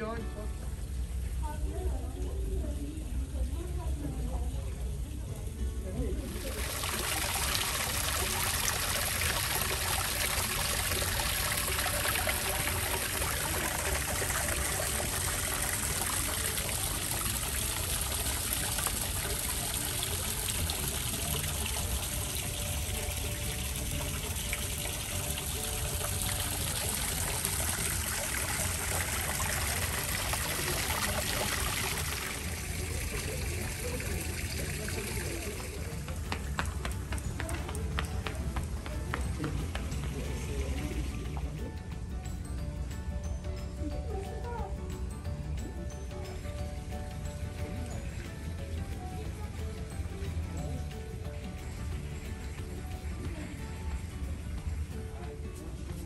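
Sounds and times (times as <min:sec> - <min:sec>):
water pouring into a pool: 0:06.3 - 0:36.7.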